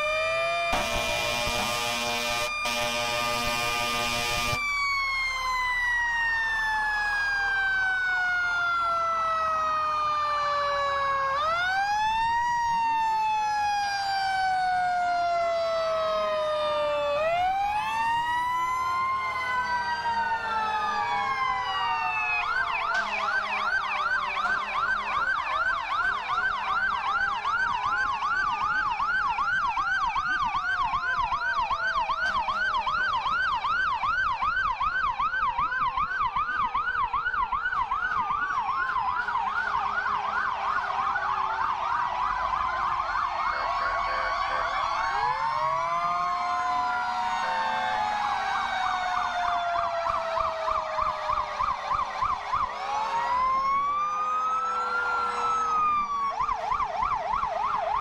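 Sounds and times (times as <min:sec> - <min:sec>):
siren fast yelp: 0:00.0 - 0:58.0
sirens wailing: 0:00.0 - 0:58.0
fire truck horn blast: 0:00.7 - 0:04.6, 0:22.9 - 0:23.9, 0:43.8 - 0:44.8.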